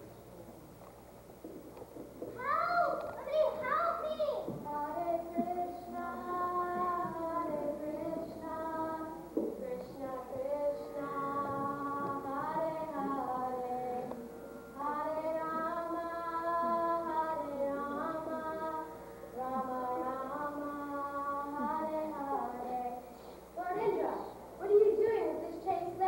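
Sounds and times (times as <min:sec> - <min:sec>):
girl singing: 0:02.4 - 0:26.0.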